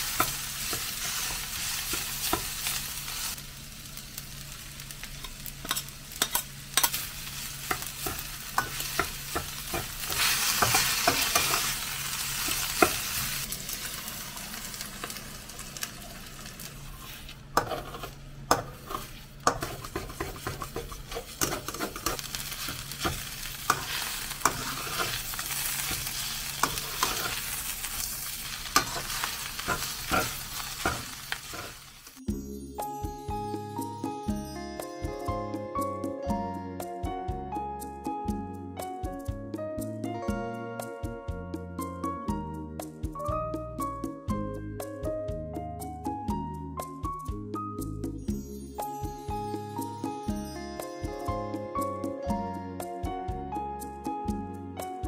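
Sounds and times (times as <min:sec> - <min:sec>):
rice sizzling in a pan: 0:00.0 - 0:32.3
spatula scraping metal pan: 0:16.9 - 0:27.6.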